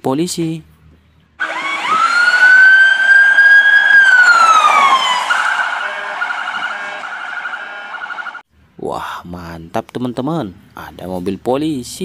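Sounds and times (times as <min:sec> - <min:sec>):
electronic siren wail and yelp: 0:01.4 - 0:08.4.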